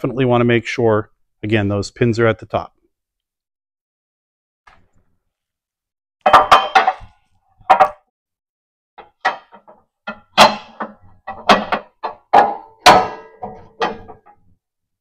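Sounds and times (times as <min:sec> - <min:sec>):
metal bracket clanking and rattling: 0:06.3 - 0:08.0, 0:09.0 - 0:14.5.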